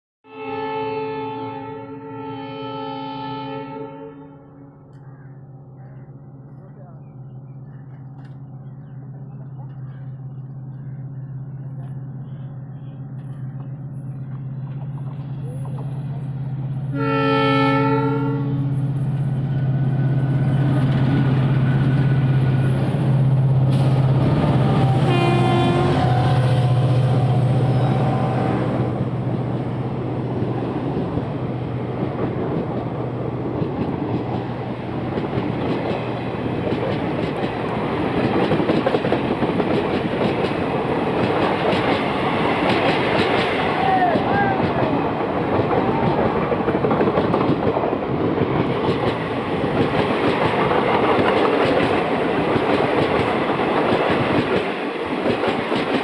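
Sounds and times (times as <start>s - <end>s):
locomotive horn blast: 0.3s - 4.8s, 16.9s - 18.9s, 24.2s - 29.0s
train coaches rumbling past: 0.4s - 56.0s.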